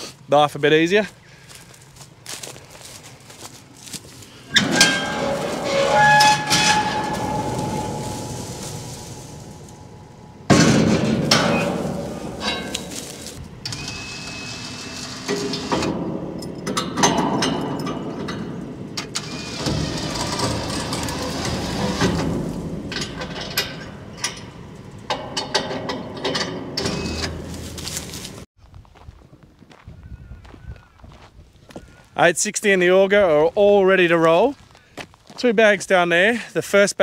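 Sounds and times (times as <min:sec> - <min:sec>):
rough mechanical background: 0:00.0 - 0:28.5
metal clanks and knocks: 0:04.5 - 0:14.0, 0:14.7 - 0:28.5.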